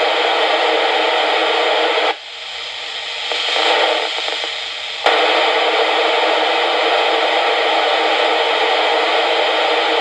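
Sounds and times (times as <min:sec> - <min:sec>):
radio receiver static rush: 0:02.8 - 0:10.0.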